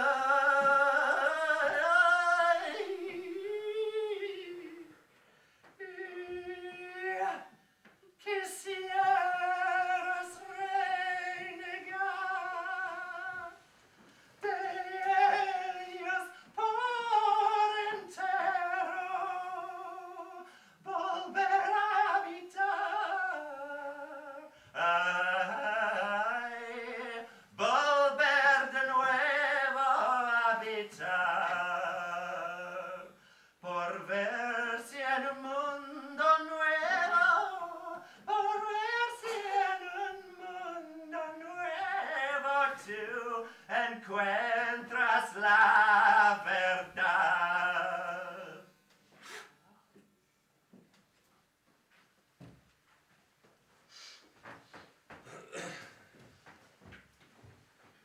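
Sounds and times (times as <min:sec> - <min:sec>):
woman singing unaccompanied: 0:14.4 - 0:48.6.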